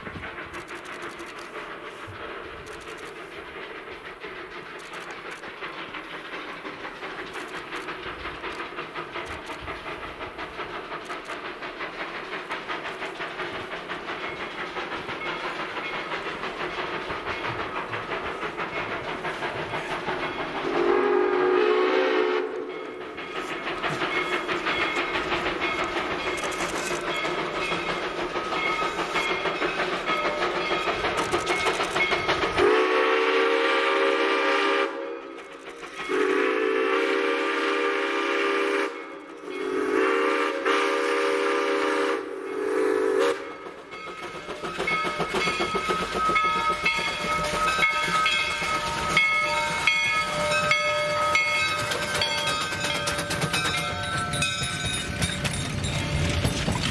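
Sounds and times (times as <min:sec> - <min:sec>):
steam locomotive chuffing: 0:00.0 - 0:56.9
steam whistle blast: 0:20.6 - 0:22.8, 0:32.6 - 0:35.4, 0:36.1 - 0:43.6.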